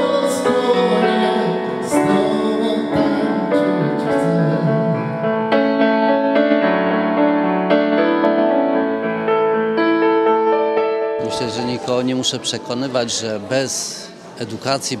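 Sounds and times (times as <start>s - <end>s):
person singing: 0.0s - 5.2s
grand piano playing: 0.0s - 14.4s.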